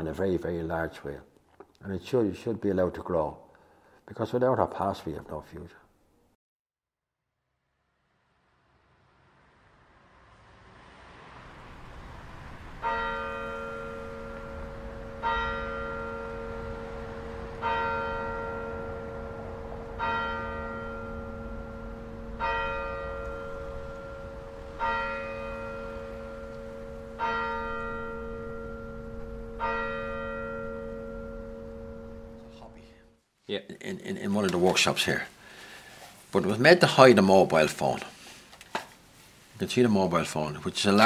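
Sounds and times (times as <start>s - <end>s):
steady low hum: 8.6s - 33.2s
bell tolling: 12.8s - 33.2s.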